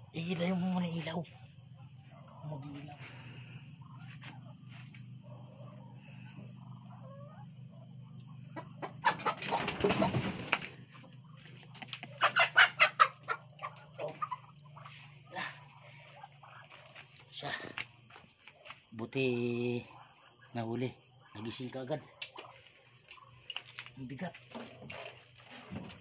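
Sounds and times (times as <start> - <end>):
chicken squawking: 8.6 - 10.6, 11.9 - 16.6
wings flapping: 9.1 - 12.3.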